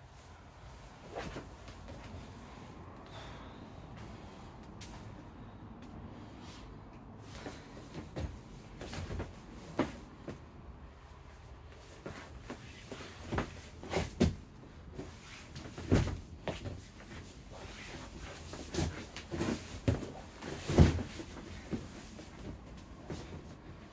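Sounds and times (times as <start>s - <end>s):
bodies and feet thudding on mats: 1.0s - 2.4s, 7.2s - 10.5s, 11.7s - 23.9s.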